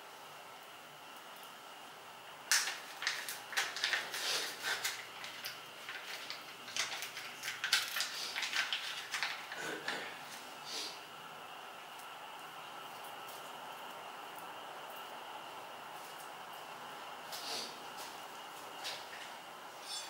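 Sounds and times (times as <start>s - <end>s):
foil sachet crinkling: 2.5s - 10.0s.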